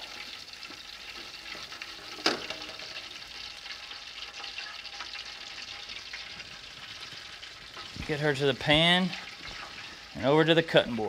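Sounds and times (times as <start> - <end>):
hot oil sizzling: 0.0 - 11.0.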